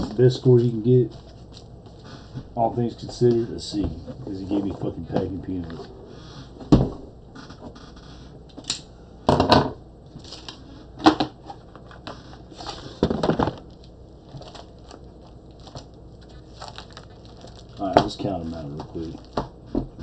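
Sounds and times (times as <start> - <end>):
plastic bags rustling: 11.5 - 19.6
comics thumping on a desk: 17.8 - 20.0.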